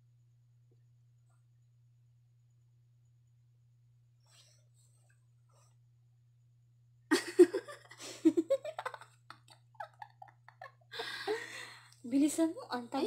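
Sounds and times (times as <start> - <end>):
women laughing and giggling: 7.1 - 11.8.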